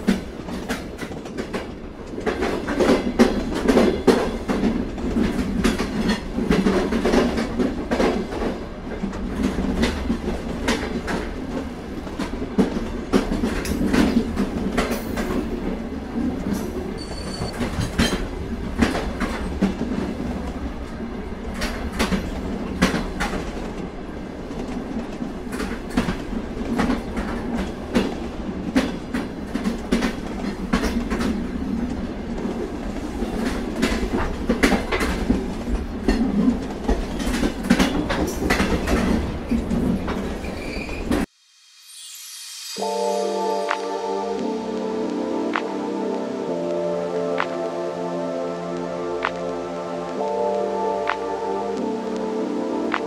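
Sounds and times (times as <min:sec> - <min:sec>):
train cars rumbling on rails: 0:00.0 - 0:41.3
wheels clacking over rail joints: 0:24.6 - 0:41.3.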